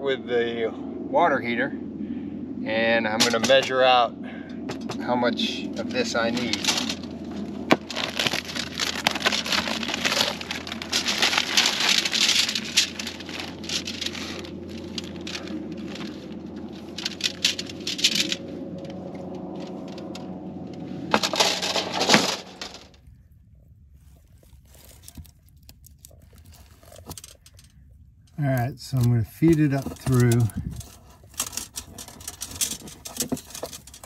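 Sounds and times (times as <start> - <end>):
steady low hum: 0.0 - 34.0
plastic packaging crinkling: 5.9 - 20.2, 24.0 - 27.8, 28.9 - 34.0.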